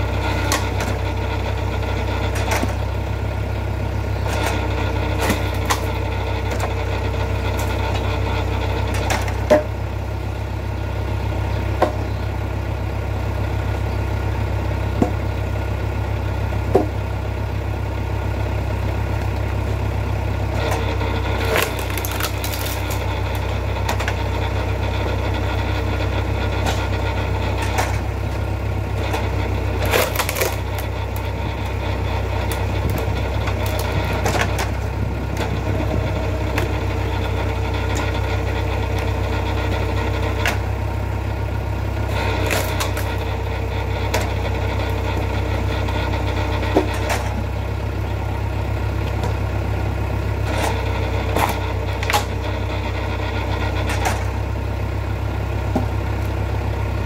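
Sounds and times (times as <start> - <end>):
log splitter engine running: 0.0 - 57.0
wood cracking: 3.8 - 8.2, 20.4 - 48.2, 48.8 - 56.4
wood splintering tear: 20.7 - 24.1, 29.0 - 35.6, 42.0 - 43.3.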